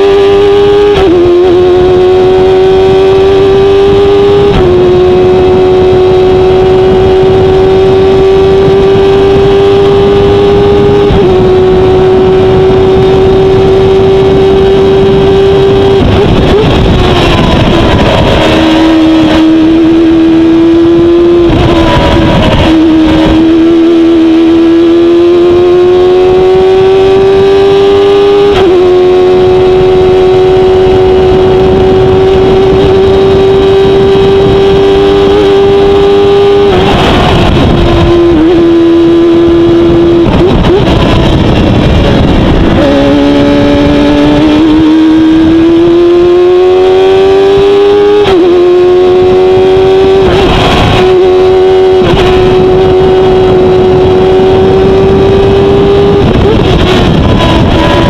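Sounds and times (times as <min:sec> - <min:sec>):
race car engine at high revs: 0:00.0 - 0:58.0.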